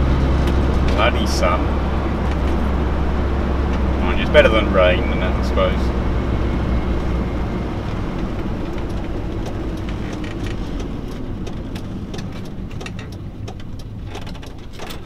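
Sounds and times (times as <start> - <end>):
van engine and road noise: 0.0 - 15.0
light ticks and rattles: 8.1 - 15.0.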